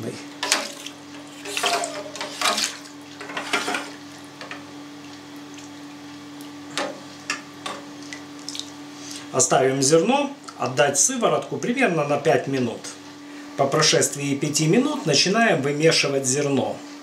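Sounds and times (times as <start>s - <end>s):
steady low hum: 0.0s - 17.0s
water dripping: 5.0s - 6.6s, 7.7s - 8.8s.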